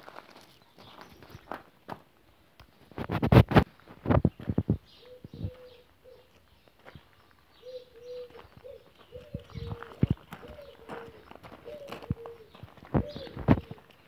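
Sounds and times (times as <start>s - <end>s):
footsteps crunching on gravel: 0.0s - 2.2s, 5.4s - 14.0s.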